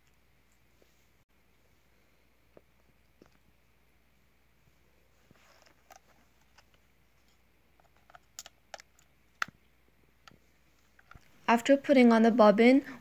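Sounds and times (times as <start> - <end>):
soft rustle: 0.4 - 8.1.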